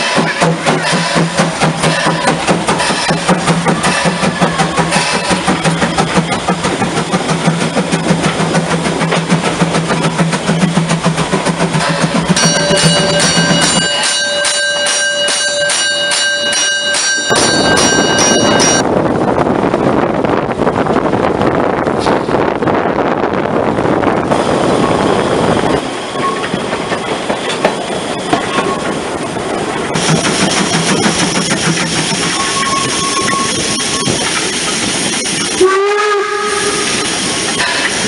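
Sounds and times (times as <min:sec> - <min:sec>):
steam locomotive pulsing beat: 0:00.0 - 0:18.9, 0:23.8 - 0:38.0
bell ringing rapidly: 0:12.4 - 0:18.8
wind on microphone: 0:17.2 - 0:25.9.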